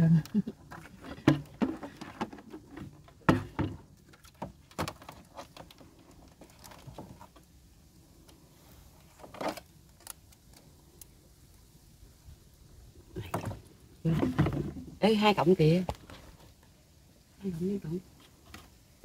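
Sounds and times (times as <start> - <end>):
knocks clatters and scrapes: 0.6 - 7.5.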